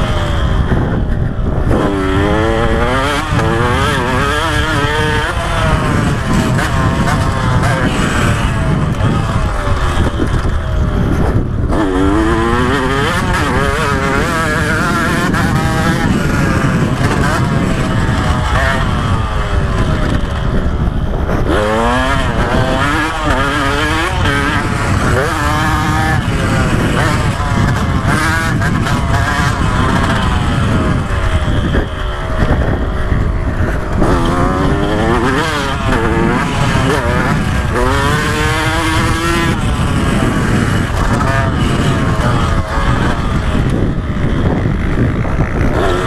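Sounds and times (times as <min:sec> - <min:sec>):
dirt bike engine revving: 0:00.0 - 0:46.0
wind rumble on microphone: 0:00.0 - 0:46.0.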